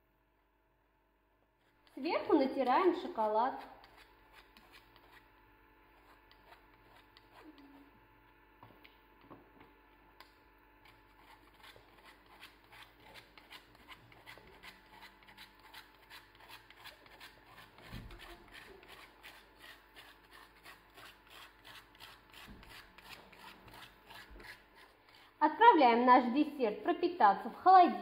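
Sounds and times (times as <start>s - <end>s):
chocolate rasping on a grater: 1.6s - 7.9s, 10.2s - 25.4s.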